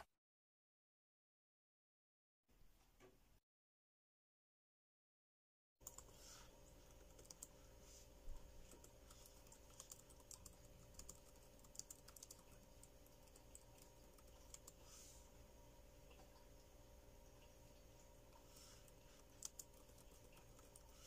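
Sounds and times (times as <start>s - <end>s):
faint laptop keyboard typing: 5.8s - 15.2s, 15.9s - 21.0s.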